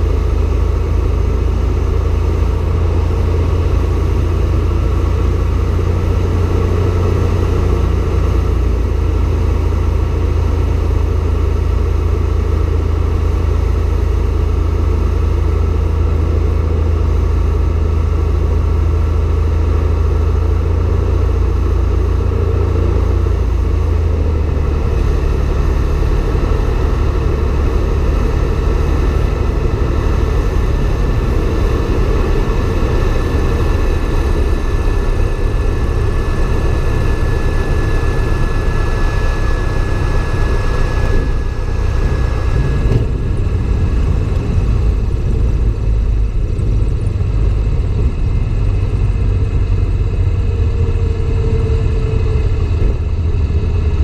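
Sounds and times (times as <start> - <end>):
propeller airplane engine idling: 0.0 - 54.0
rushing airflow: 23.4 - 50.3.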